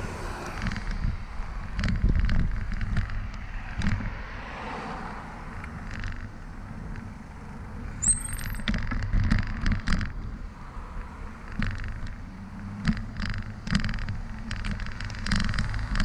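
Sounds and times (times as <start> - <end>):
bicycle rattling over pavement: 0.0 - 16.0
high squeak: 8.0 - 8.7.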